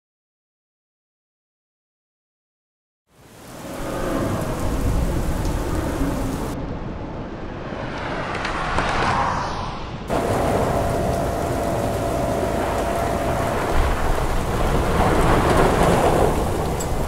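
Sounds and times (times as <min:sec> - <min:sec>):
heavy rain: 0:03.1 - 0:06.6, 0:10.1 - 0:17.0
rolling thunder: 0:10.1 - 0:17.0
steady hum: 0:10.1 - 0:17.0.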